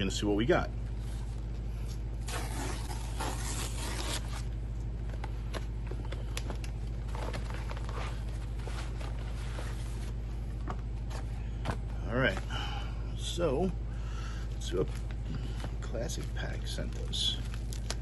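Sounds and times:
steady low hum: 0.0 - 18.0
package being torn open: 2.2 - 4.5, 17.5 - 18.0
packaging rustling: 16.2 - 18.0.

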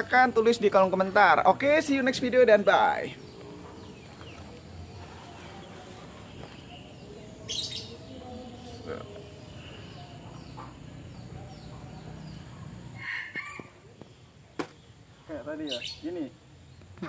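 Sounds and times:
chickens clucking: 3.2 - 6.9, 8.7 - 14.7.

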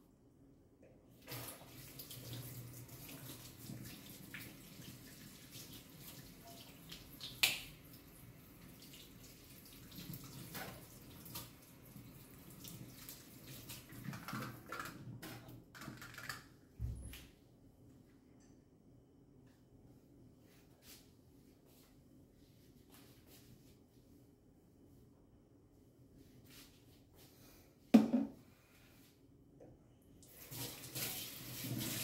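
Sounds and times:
knocks and clatters of dishes: 28.0 - 28.4.

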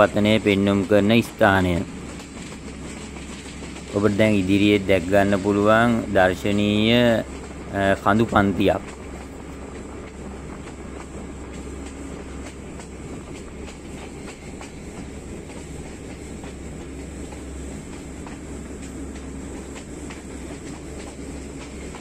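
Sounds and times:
train rumble: 0.0 - 22.0
wheels clicking over rails: 0.0 - 22.0.

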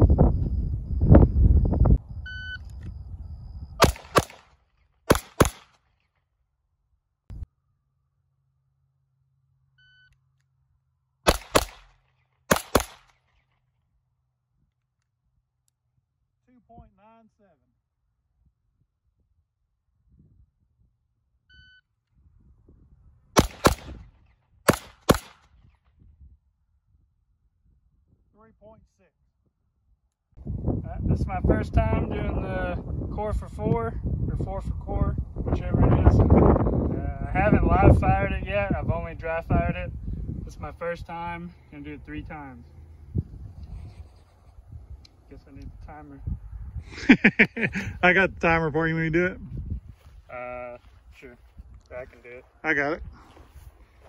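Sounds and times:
short electronic beep: 2.2 - 2.7
pistol shots: 3.8 - 5.8, 11.3 - 13.2, 23.4 - 24.0, 24.7 - 25.5.

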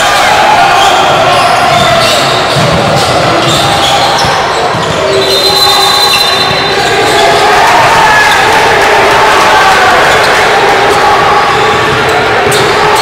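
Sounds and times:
basketball bouncing on court: 1.7 - 7.2.

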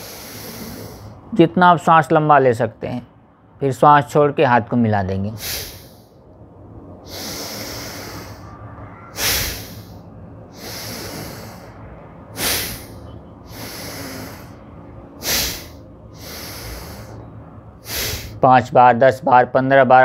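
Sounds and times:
man inhaling: 0.0 - 1.3, 5.4 - 6.2, 7.0 - 18.4
man exhaling sharply: 5.4 - 6.0, 7.0 - 11.8, 12.4 - 14.6, 15.2 - 17.2, 17.8 - 18.4.

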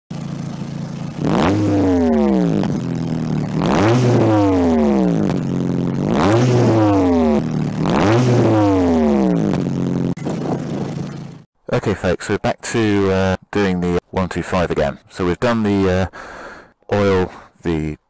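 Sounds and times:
motorcycle engine revving: 0.1 - 11.5
steady low tones: 0.1 - 11.9.

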